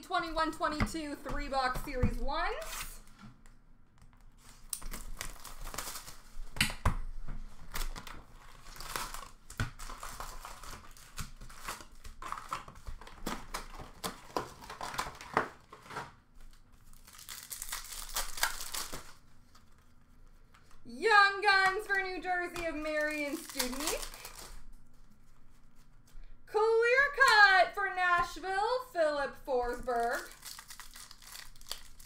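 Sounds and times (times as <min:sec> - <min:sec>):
card wrappers crinkling and ripping: 0:04.4 - 0:06.6, 0:07.4 - 0:20.8, 0:21.5 - 0:26.1, 0:29.6 - 0:32.0.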